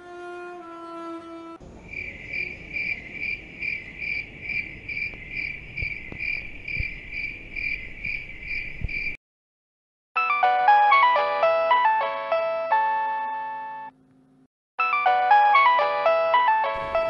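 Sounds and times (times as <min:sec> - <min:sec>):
cricket chirping: 0:01.6 - 0:09.2.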